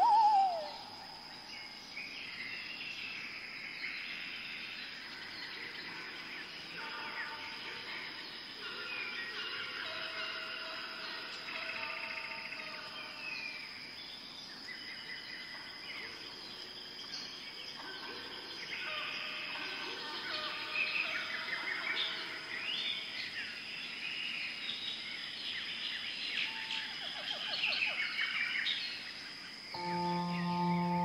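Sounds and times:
birds chirping and singing: 0.0s - 0.9s, 29.7s - 31.0s
steady high-pitched tone: 29.8s - 31.0s.

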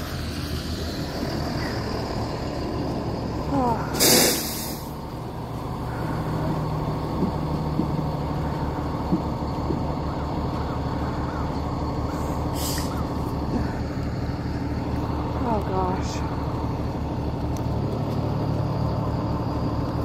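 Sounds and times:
diesel engine idling: 0.0s - 20.0s
air release hiss: 3.9s - 5.0s, 12.5s - 12.9s.

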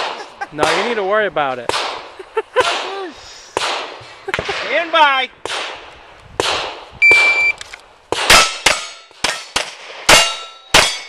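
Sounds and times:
shot timer beep: 7.0s - 7.6s
handgun shots: 8.2s - 11.0s
bullets ringing on steel plates: 8.3s - 11.0s.

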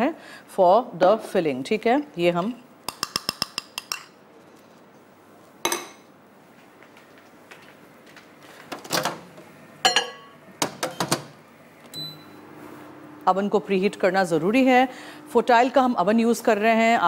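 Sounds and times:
metal spoon clinking glass bowl: 9.8s - 10.3s.

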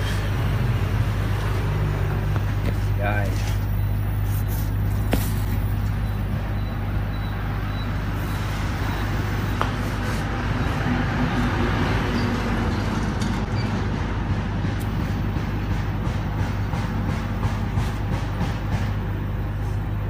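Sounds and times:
fan-like rushing noise: 8.1s - 12.6s.

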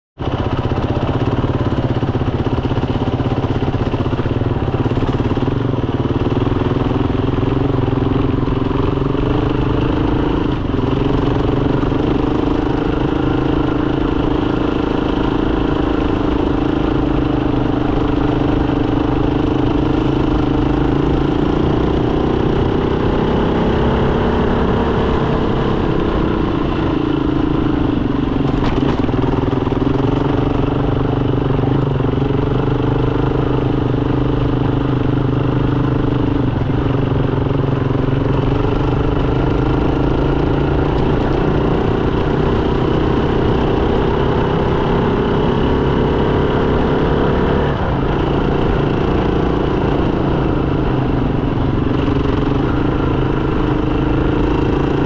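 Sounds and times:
motorcycle engine running: 0.2s - 55.0s.

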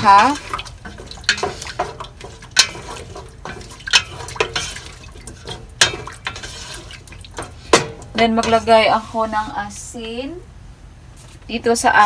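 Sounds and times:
spatula knocking against pot: 0.0s - 8.7s
liquid sloshing in a pot: 0.0s - 9.9s.

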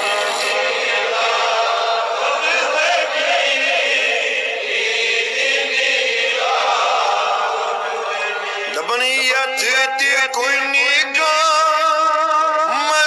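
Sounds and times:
man singing devotional chant: 5.6s - 13.0s.

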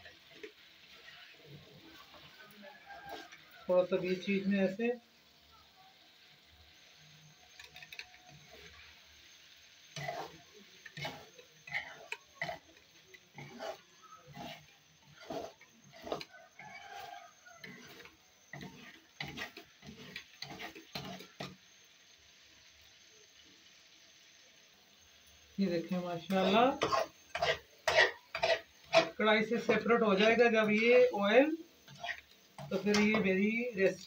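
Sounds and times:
metal spatula scraping a pan: 0.0s - 4.8s, 7.4s - 21.6s, 26.3s - 34.0s
frying hiss: 0.0s - 34.0s.

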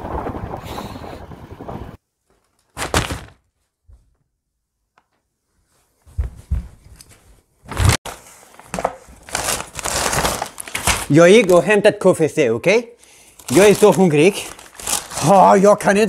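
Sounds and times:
paper bag rustling and crinkling: 2.3s - 3.5s, 7.7s - 11.8s, 13.3s - 15.9s.

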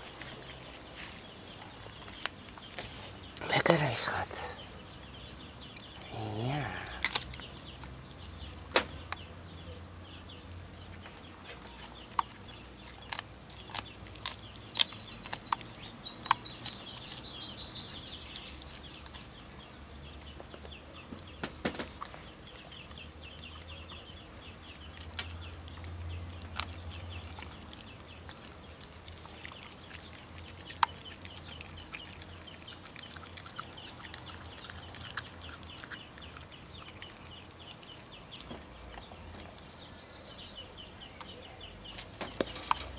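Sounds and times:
bird chirping: 0.0s - 42.9s
dog chewing on bones: 6.8s - 9.3s, 10.7s - 39.7s.

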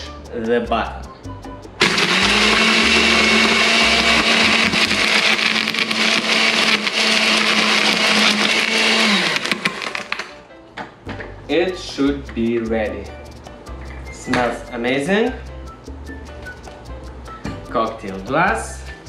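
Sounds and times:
blender crushing ice: 1.8s - 10.4s.

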